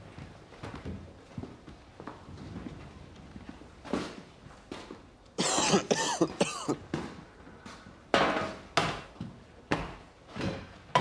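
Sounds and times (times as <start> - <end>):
person coughing: 5.4 - 6.8.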